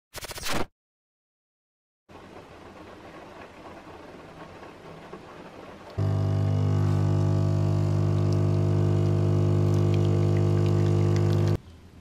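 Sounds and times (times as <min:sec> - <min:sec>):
coffee machine pump humming: 0:06.0 - 0:11.6.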